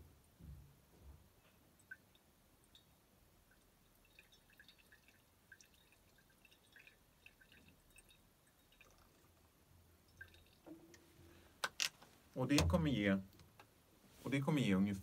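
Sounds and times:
liquid dripping into water: 1.8s - 11.0s.

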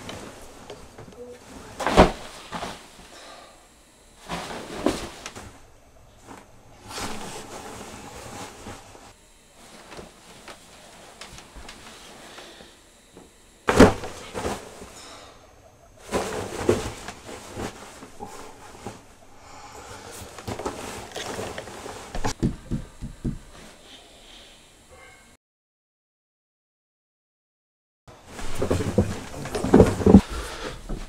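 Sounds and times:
bedding rustling: 0.0s - 15.3s, 16.0s - 19.2s, 19.9s - 23.8s, 28.2s - 31.0s
mattress thumping: 1.8s - 2.9s, 13.7s - 14.8s, 22.2s - 23.7s.

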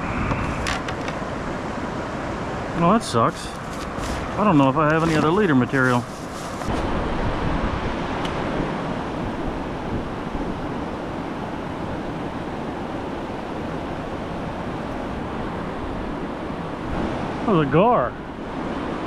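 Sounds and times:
river rapids rushing over boulders: 0.0s - 7.2s.

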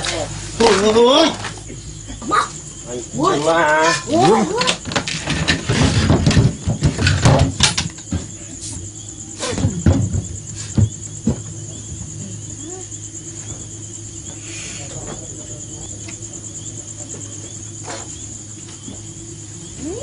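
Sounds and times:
crickets trilling: 0.0s - 20.0s
sharp knocks: 4.8s - 8.4s, 9.4s - 11.6s.

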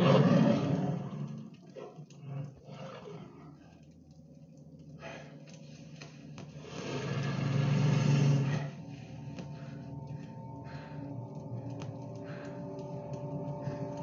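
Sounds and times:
wolf growling and snarling: 0.0s - 3.9s, 6.6s - 8.9s.

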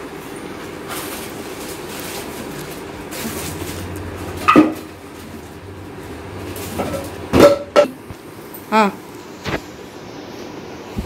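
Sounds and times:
dishes knocking and ringing: 6.9s - 8.0s.

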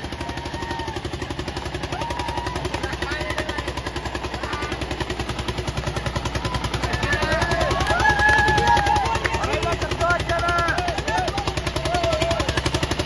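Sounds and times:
tractor diesel engines labouring: 0.0s - 13.0s
people calling out: 1.8s - 5.0s, 6.2s - 13.0s.

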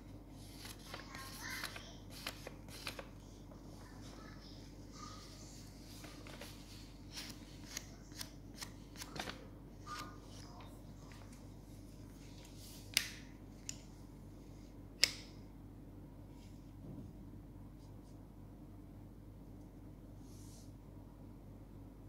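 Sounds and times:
paper rustling and crinkling: 0.4s - 4.3s, 5.2s - 12.9s.

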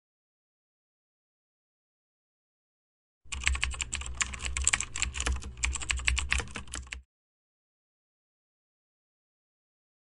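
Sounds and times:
typing on computer keyboard: 3.3s - 7.1s.

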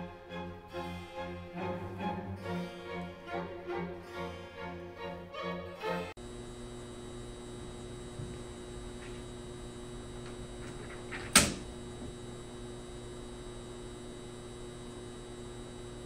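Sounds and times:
electrical hum: 6.1s - 16.0s.

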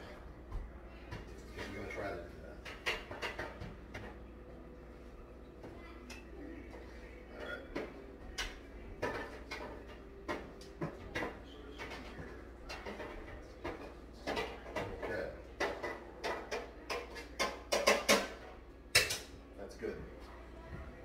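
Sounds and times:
cookware knocking and clattering: 2.5s - 4.2s, 7.4s - 19.3s.

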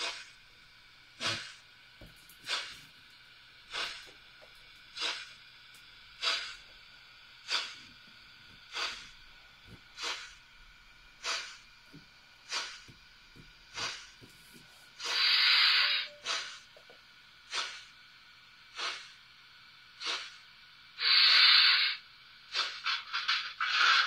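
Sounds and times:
model train steam chuffs: 0.0s - 24.0s
steam hiss: 0.0s - 24.0s.

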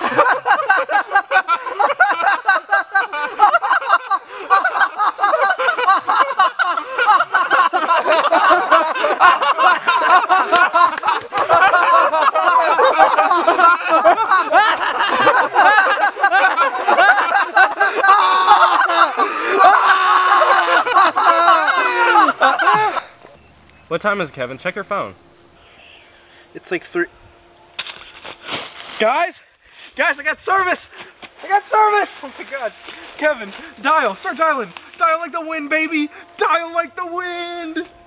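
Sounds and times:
people laughing loudly: 0.0s - 23.4s, 31.5s - 37.8s.

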